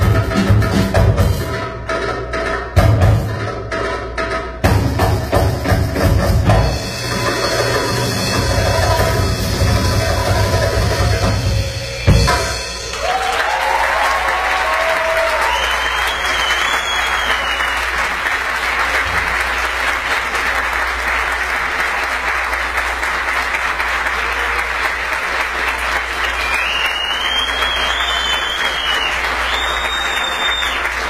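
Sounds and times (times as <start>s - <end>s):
audience applauding: 12.1s - 31.0s.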